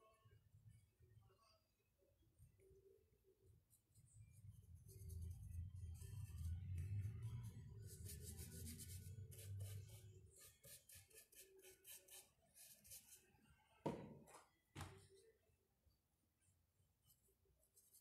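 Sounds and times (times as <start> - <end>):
paintbrush scratchy strokes: 3.7 - 13.3, 17.0 - 18.0
paint jars knocking on table: 13.8 - 15.0.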